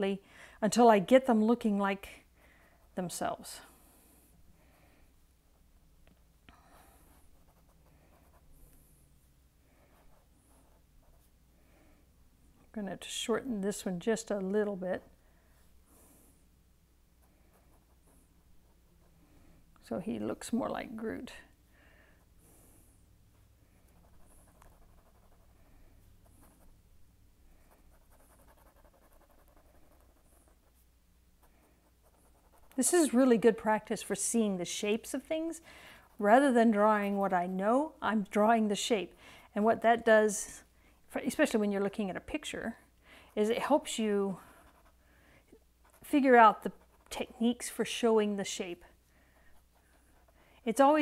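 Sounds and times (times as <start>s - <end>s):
soft breaths: 0.2s - 0.6s, 2.1s - 5.4s, 6.4s - 12.8s, 15.1s - 16.6s, 17.2s - 19.9s, 21.1s - 26.8s, 35.6s - 36.2s, 39.1s - 39.6s, 42.8s - 45.7s, 48.8s - 50.7s
pen scratching on paper: 6.7s - 8.8s, 9.8s - 11.3s, 17.2s - 19.1s, 23.8s - 26.8s, 27.6s - 33.0s, 43.4s - 45.0s, 45.8s - 47.6s, 49.5s - 51.0s.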